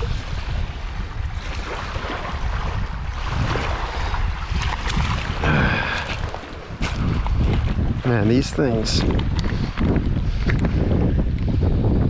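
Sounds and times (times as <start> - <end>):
wind buffeting microphone: 0.0 - 12.0
waves washing onto pebbles: 3.2 - 9.8.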